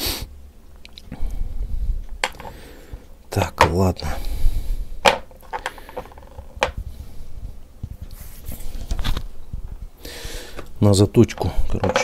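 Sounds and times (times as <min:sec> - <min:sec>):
low rumbling handling noise: 0:01.4 - 0:12.0.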